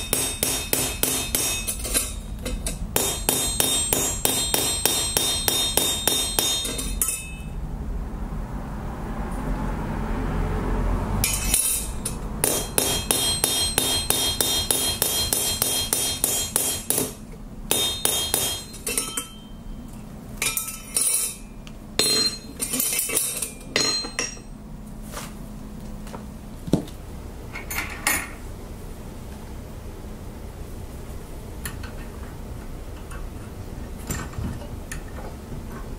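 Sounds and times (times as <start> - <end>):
hammer tapping on steel: 0.0 - 7.5, 11.3 - 19.4.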